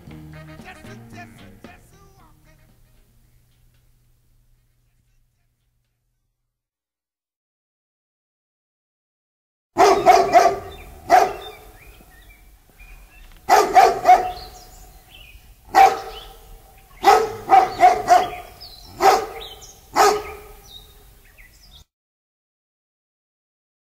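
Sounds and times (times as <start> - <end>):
dog barking: 9.8 - 11.9, 13.5 - 15.0, 15.7 - 20.9.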